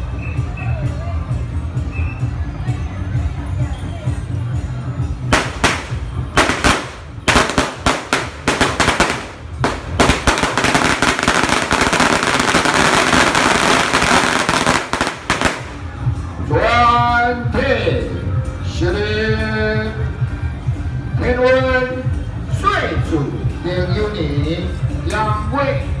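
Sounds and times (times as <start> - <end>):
firecracker string crackling: 5.2 - 16.2
firecracker bangs: 5.3 - 15.8.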